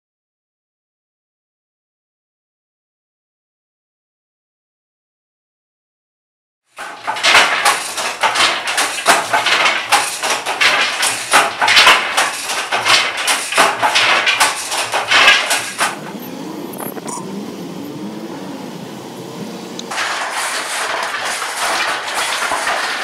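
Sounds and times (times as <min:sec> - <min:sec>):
handloom wooden clatter: 0:06.8 - 0:16.2, 0:19.9 - 0:23.0
road noise: 0:15.7 - 0:20.0
vehicle engine hum: 0:16.0 - 0:19.9.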